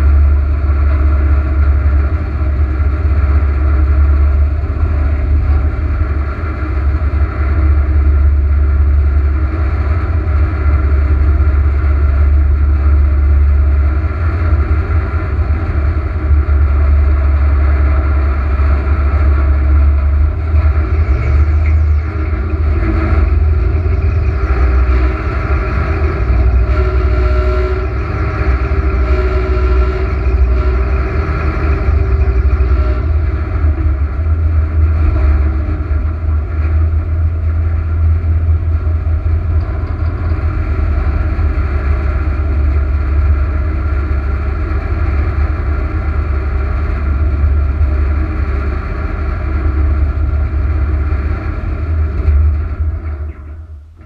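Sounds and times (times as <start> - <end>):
airboat engine and propeller: 0.0 - 54.0.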